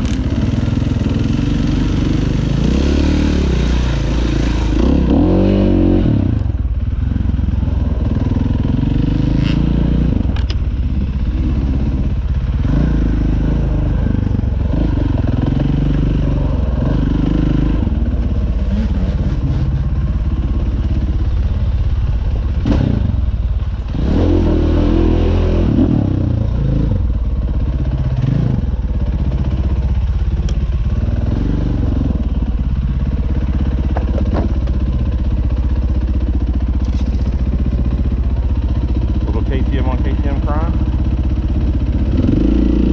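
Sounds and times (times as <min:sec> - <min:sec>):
dirt bike engine revving: 0:00.0 - 0:06.6, 0:07.2 - 0:34.7, 0:35.4 - 0:42.9
sharp knocks over bumps: 0:33.8 - 0:34.8.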